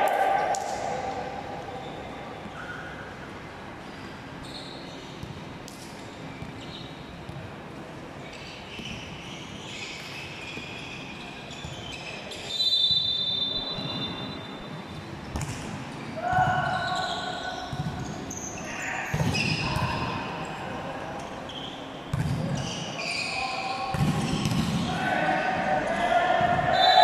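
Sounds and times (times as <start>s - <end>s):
echoing crowd hubbub: 0.0s - 4.4s, 11.1s - 27.0s
ball bouncing on court floor: 15.3s - 16.5s, 17.7s - 18.1s, 22.1s - 22.7s, 23.9s - 24.9s.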